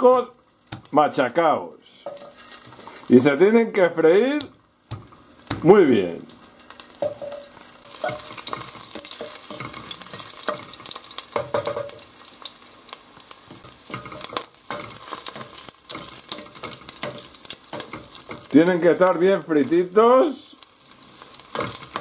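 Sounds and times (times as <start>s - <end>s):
garlic sizzling in oil: 0.0s - 22.0s
wooden spoon scraping a pot: 2.1s - 3.1s.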